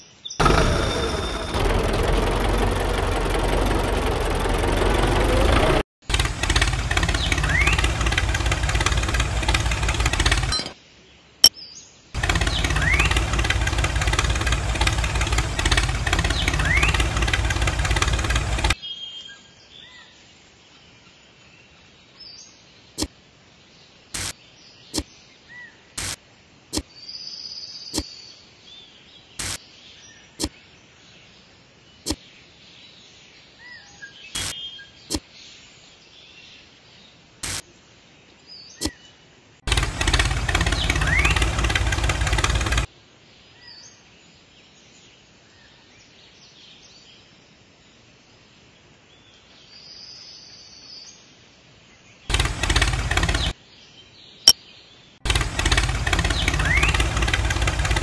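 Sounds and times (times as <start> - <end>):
birds chirping faintly: 0.0 - 25.9
sharp clicks: 0.4 - 10.8, 12.2 - 18.8, 29.4 - 29.6, 34.4 - 35.2, 37.4 - 37.6, 39.7 - 42.9, 52.3 - 53.6, 55.3 - 58.0
small motor running loudly: 0.4 - 10.8, 12.2 - 18.8, 39.7 - 42.9, 52.3 - 53.5, 55.3 - 58.0.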